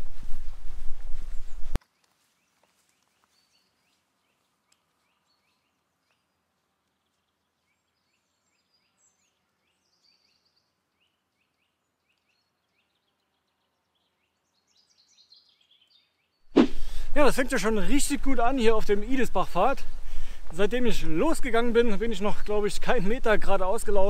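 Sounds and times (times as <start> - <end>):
faint birdsong chirps: 1.4 - 16.5.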